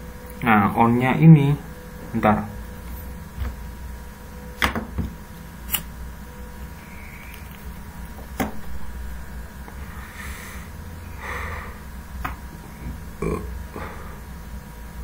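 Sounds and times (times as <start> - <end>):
steady low hum: 0.0 - 15.0
breathy smoking puffs: 9.6 - 11.9
person gulping: 12.8 - 13.8.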